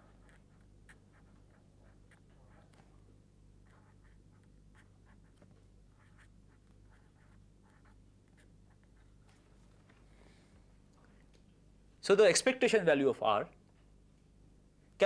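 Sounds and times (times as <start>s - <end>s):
pen scratching while handwriting: 0.0s - 2.8s, 3.6s - 9.2s
low steady room hum: 0.0s - 15.0s.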